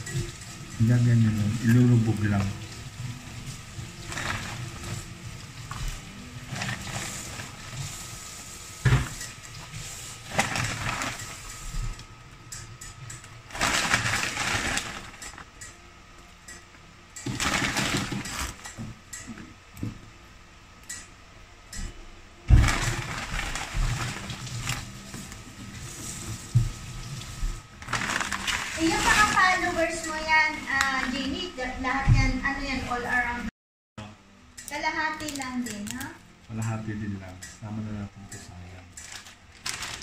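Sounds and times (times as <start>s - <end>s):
dry noodles crackling and rustling: 0.0s - 11.9s, 13.5s - 15.6s, 17.2s - 18.6s, 22.5s - 30.0s, 39.0s - 40.0s.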